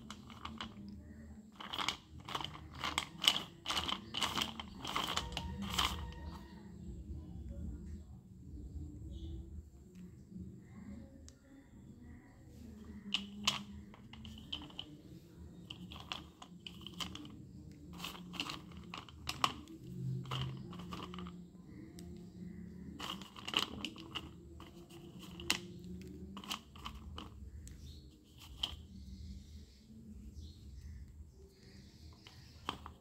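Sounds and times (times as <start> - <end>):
pencils clattering on steel bowl: 0.0 - 6.5, 12.8 - 15.0, 15.6 - 21.5, 22.9 - 28.9, 32.2 - 33.0
slate pencils clicking and clattering: 0.0 - 6.5, 12.7 - 29.1, 32.1 - 33.0.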